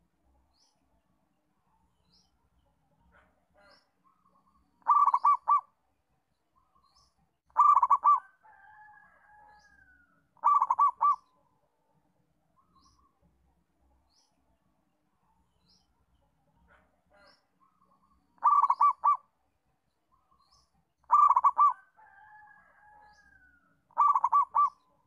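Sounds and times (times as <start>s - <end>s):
dove cooing: 4.8s - 5.7s, 7.6s - 8.4s, 10.4s - 11.3s, 18.4s - 19.3s, 21.0s - 22.6s, 23.3s - 24.9s.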